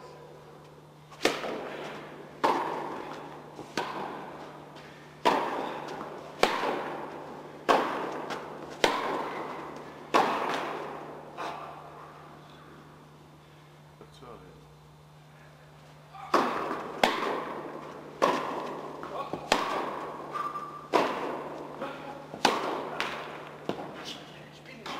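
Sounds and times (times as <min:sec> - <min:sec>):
tennis ball pops echoing: 0:05.2 - 0:11.0, 0:16.3 - 0:21.7, 0:22.3 - 0:23.9.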